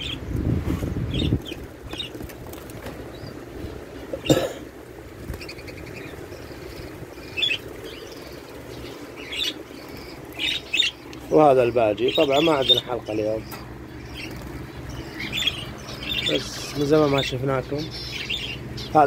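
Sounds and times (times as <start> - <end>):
budgerigars chirping: 0.0 - 0.3, 1.1 - 2.2, 3.1 - 3.4, 5.3 - 19.0.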